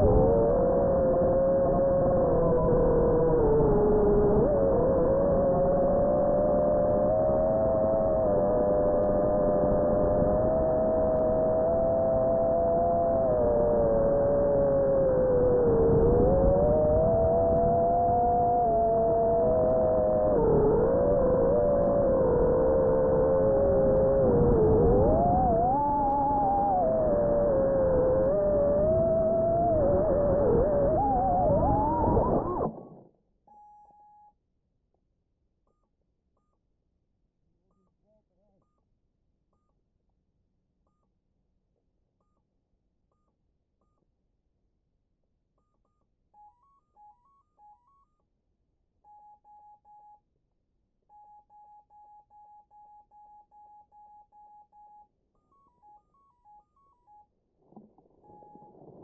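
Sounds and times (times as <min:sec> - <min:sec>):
drone motors whining: 0:00.0 - 0:32.8
short single-pitch beeps: 0:33.5 - 0:34.4, 0:49.1 - 0:50.3, 0:51.1 - 0:57.3, 0:58.2 - 0:58.8.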